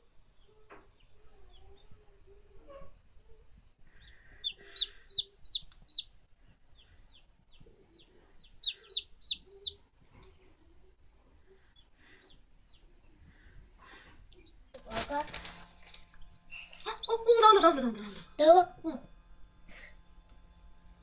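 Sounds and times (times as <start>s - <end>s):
chick peeping: 0.4s - 13.3s, 16.2s - 17.8s.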